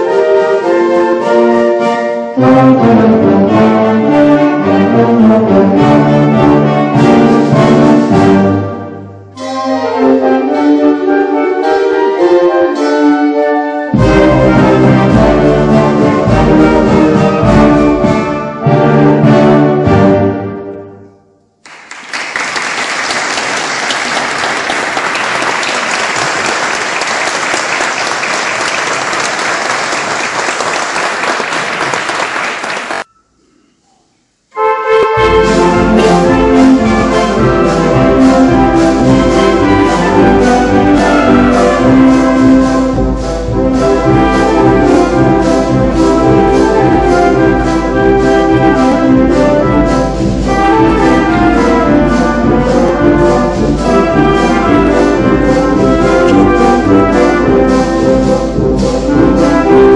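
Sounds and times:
brass ensemble playing: 0.0s - 21.2s, 34.5s - 59.9s
audience applauding: 21.6s - 33.1s.

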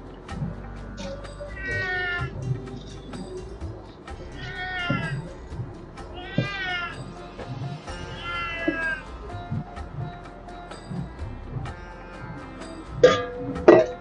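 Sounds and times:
background music: 0.0s - 14.0s
cat meowing: 1.5s - 2.4s, 4.4s - 5.3s, 6.1s - 10.1s.

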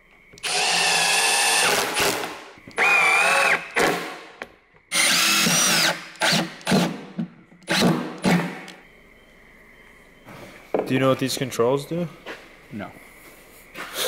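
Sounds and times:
drill motor whine: 0.4s - 4.1s, 4.9s - 7.0s.

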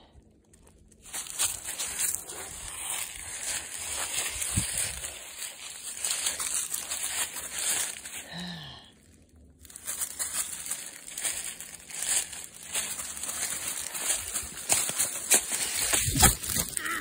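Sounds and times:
footsteps crunching through dry leaves: 0.9s - 8.7s, 9.6s - 17.0s.

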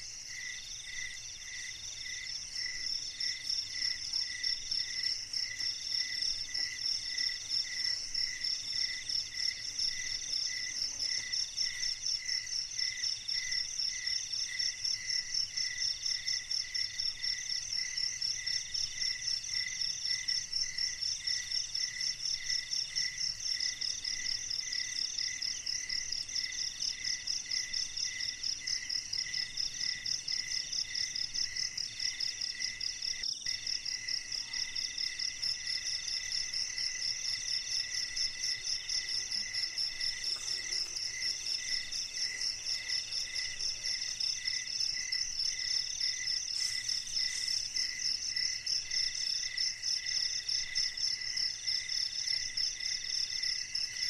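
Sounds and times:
insect call in phrases: 0.0s - 54.0s
low pulsing insect call: 0.0s - 54.0s
high insect trill: 25.0s - 54.0s.

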